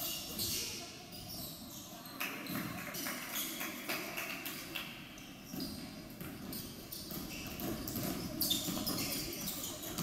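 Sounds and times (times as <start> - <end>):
basketball dribbling: 5.5 - 10.0.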